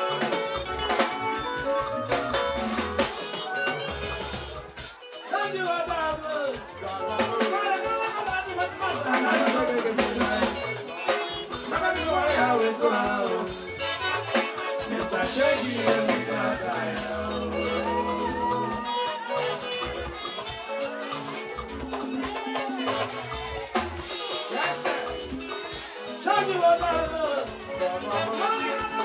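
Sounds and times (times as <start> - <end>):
bass: 0.0 - 29.0
drums beat: 0.0 - 29.0
guitar: 0.0 - 29.0
man singing into microphone: 6.0 - 13.9, 14.8 - 19.0, 26.2 - 29.0.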